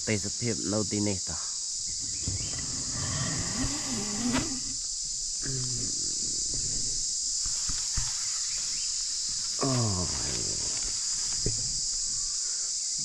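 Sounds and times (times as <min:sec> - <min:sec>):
crickets chirping: 0:00.0 - 0:13.0
short low calls: 0:05.4 - 0:07.0.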